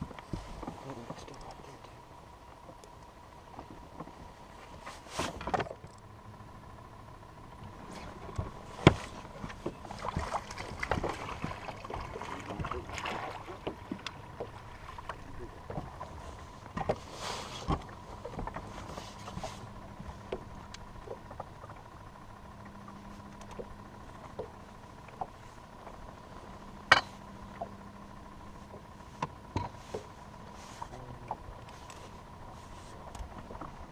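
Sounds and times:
faint steady hum: 0:00.0 - 0:33.9
knocks and bumps on boat deck: 0:08.4 - 0:13.0.

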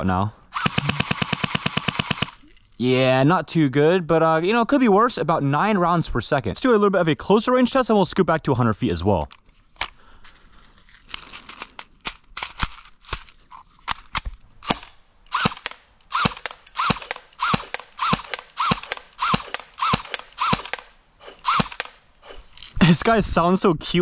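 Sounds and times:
airsoft gun shots: 0:14.6 - 0:22.5.

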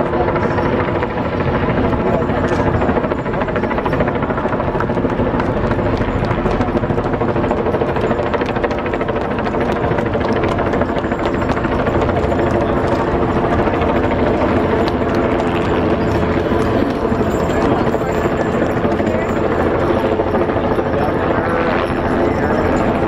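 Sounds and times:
pulsing mechanical drone: 0:00.0 - 0:23.0.

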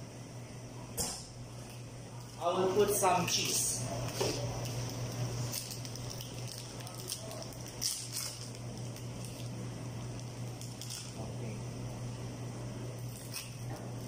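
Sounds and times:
kitchen equipment hum: 0:00.0 - 0:14.0
wrapper rustling: 0:04.0 - 0:11.2.

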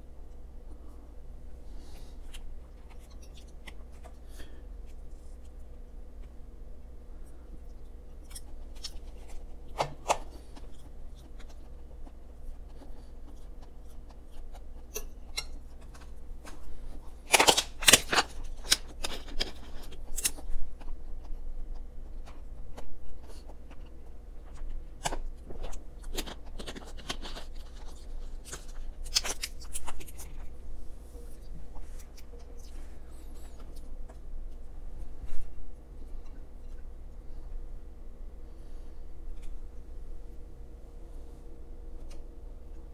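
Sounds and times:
person chewing with mouth clicks: 0:10.1 - 0:16.2.

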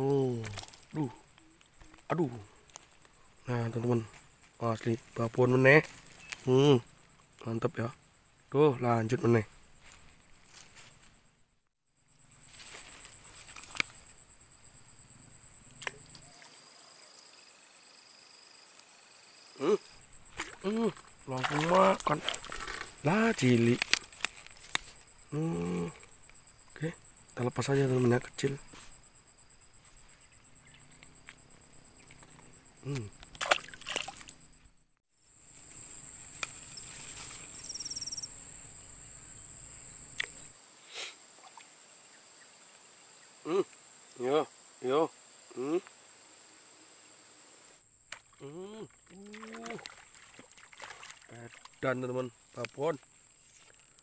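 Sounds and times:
high-pitched insect trilling: 0:00.0 - 0:11.1, 0:11.9 - 0:54.0
lower insect trill: 0:00.0 - 0:54.0.

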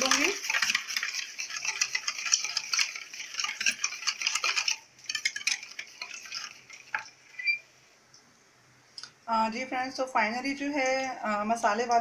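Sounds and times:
utensil clinking and scraping bowl: 0:00.0 - 0:07.6.

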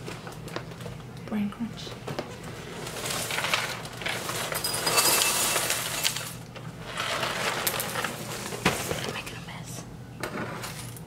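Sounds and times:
cereal clinking against bowl: 0:04.3 - 0:06.4.

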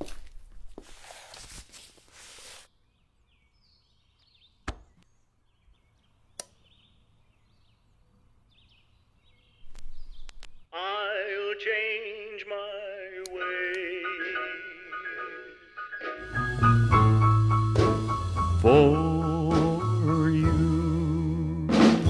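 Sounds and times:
faint bird chirps: 0:02.7 - 0:10.7
sharp clicks: 0:06.4 - 0:06.6, 0:09.7 - 0:10.6
person singing with vibrato: 0:10.7 - 0:22.0
music from a record: 0:13.4 - 0:22.0.

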